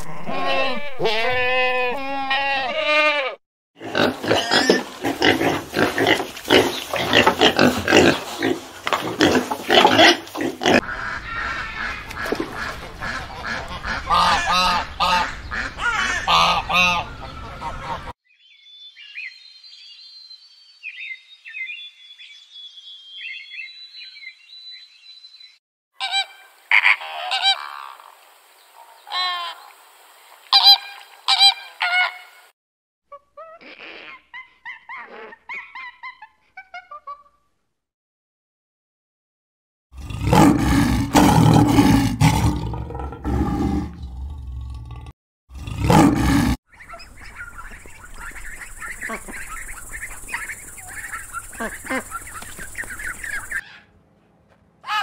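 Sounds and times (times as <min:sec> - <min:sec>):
faint high chirping: 0:46.7 - 0:53.6.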